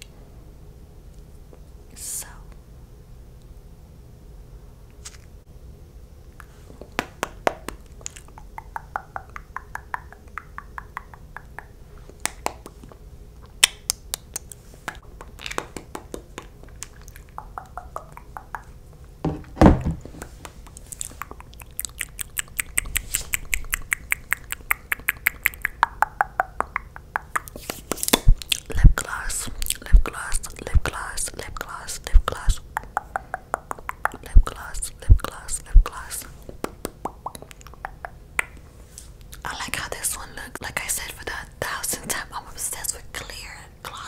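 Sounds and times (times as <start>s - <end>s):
wet mouth clicks and smacks: 7.7s - 18.7s, 20.4s - 30.7s, 31.6s - 36.1s, 36.8s - 38.6s.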